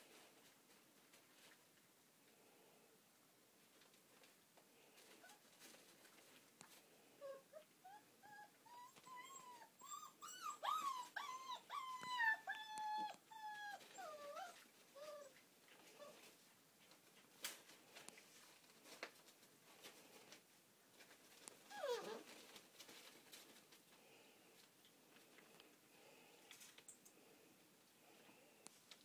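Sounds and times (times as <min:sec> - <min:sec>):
puppy whining: 0:07.2 - 0:16.3, 0:21.6 - 0:22.4.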